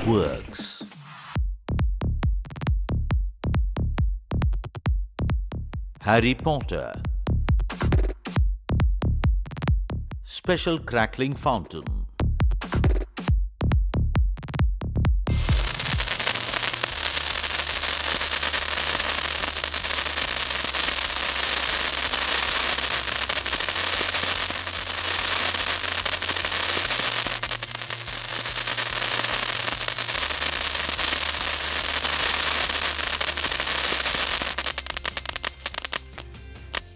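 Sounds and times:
fountain firework crackling: 0:15.3 - 0:36.9.

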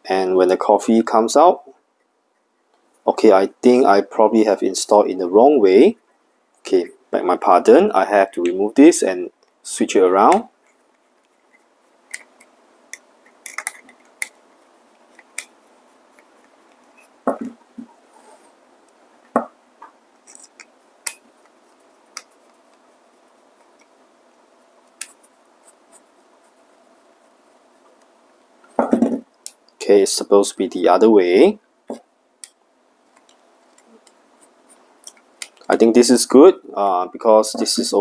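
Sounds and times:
sharp knocks: 0:17.2 - 0:17.9, 0:28.8 - 0:29.3.

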